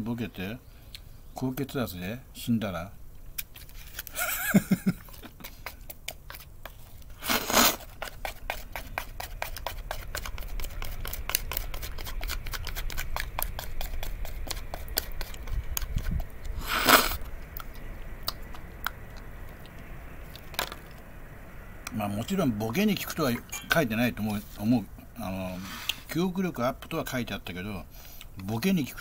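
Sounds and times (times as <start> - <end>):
person eating sticky food: 3.3 - 21.0.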